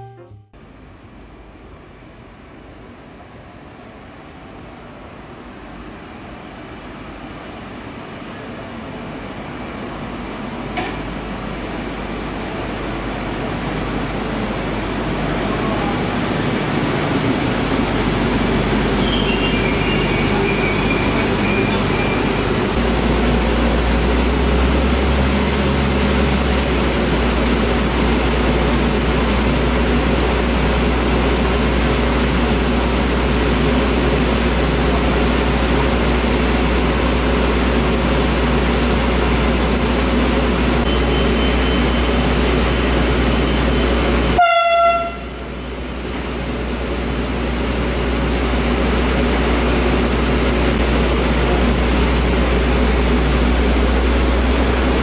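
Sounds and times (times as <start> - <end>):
diesel train engine drone: 0.0 - 55.0
train horn toot: 44.4 - 45.4.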